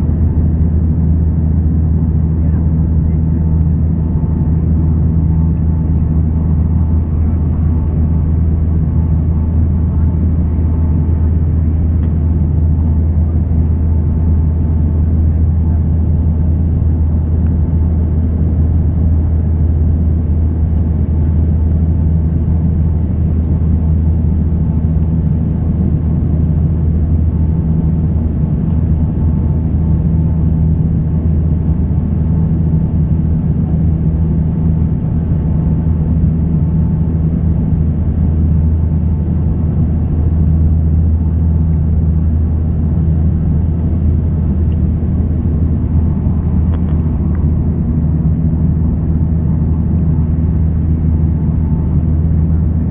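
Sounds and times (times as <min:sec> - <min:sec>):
aircraft engines droning: 0:00.0 - 0:52.9
faint hum: 0:00.0 - 0:52.9.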